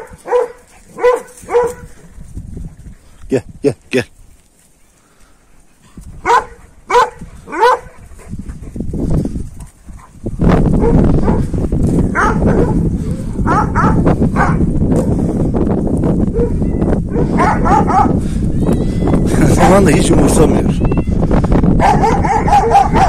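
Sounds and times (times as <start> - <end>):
large dogs barking: 0.0 - 2.0, 6.2 - 8.8, 9.6 - 15.2, 16.3 - 18.2, 21.8 - 23.0.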